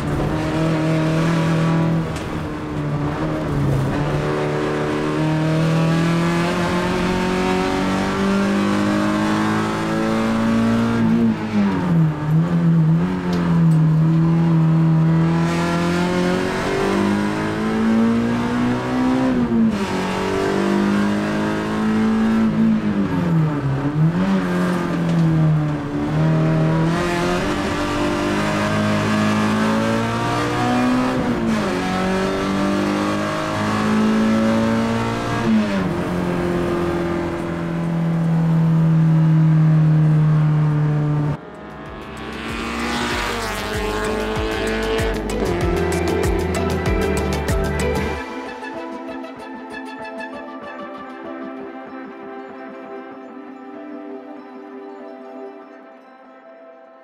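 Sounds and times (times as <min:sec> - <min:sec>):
rally car engine revving: 0:00.0 - 0:48.2.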